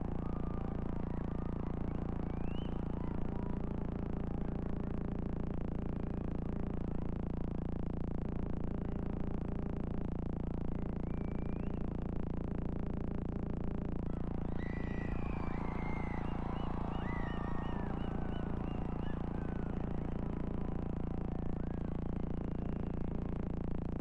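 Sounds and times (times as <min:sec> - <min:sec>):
crowded arena rumble: 0:00.0 - 0:07.2, 0:14.0 - 0:24.0
faint rising whistle-like tone: 0:02.3 - 0:03.1, 0:11.0 - 0:11.8, 0:14.2 - 0:23.3.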